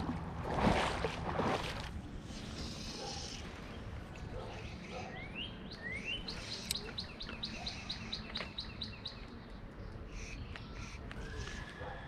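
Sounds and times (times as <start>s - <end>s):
low background rush: 0.0s - 12.0s
songbird singing: 2.6s - 12.0s.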